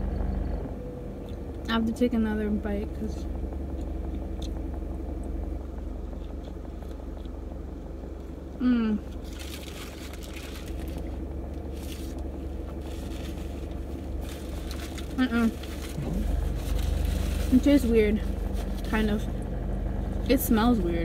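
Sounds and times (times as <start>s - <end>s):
low car hum: 0.0s - 21.0s
person chewing: 6.1s - 7.4s
person humming: 8.6s - 9.1s.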